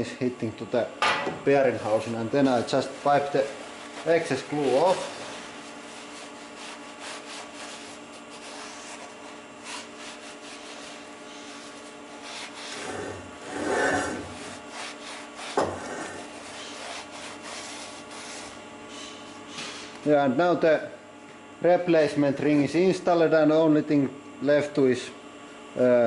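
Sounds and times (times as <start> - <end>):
rag rubbing inside metal housing: 3.0 - 18.6.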